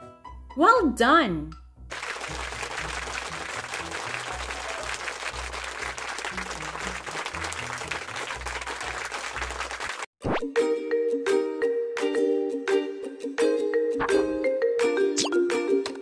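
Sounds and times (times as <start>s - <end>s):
applause: 1.9s - 10.1s.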